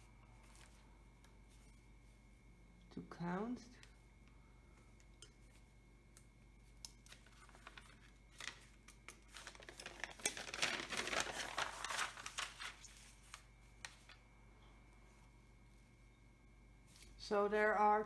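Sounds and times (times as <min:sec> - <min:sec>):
paper rustling and crinkling: 0:00.4 - 0:00.8, 0:07.0 - 0:14.2.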